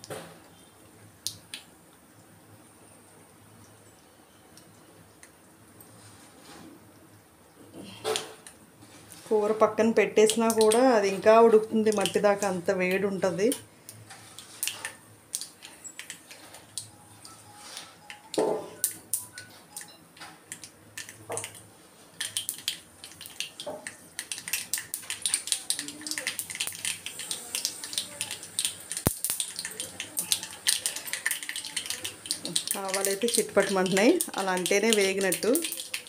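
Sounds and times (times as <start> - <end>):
seeds popping in hot oil: 9.8 - 17.0, 18.0 - 21.6, 22.2 - 36.0.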